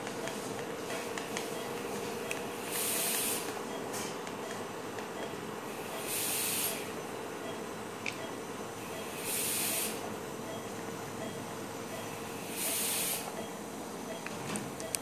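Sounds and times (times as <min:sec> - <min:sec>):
faint hum: 0:00.0 - 0:15.0
high-pitched hiss rush: 0:02.6 - 0:03.6, 0:05.7 - 0:07.0, 0:08.9 - 0:10.1, 0:12.1 - 0:13.4
steady hiss: 0:02.6 - 0:03.6, 0:05.7 - 0:07.0, 0:08.8 - 0:10.1, 0:11.6 - 0:13.4.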